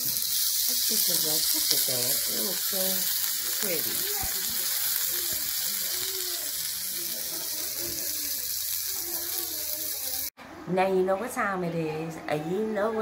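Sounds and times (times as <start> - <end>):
chicken sizzling in grill pan: 0.0 - 10.3
faint voices: 0.8 - 10.9.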